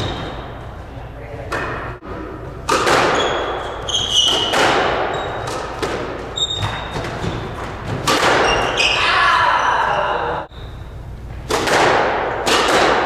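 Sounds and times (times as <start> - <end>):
shoe squeaks on hardwood floor: 0.0 - 0.6, 3.1 - 5.5, 6.3 - 7.7, 8.4 - 9.1
squash ball hits: 1.5 - 8.8, 11.4 - 13.0.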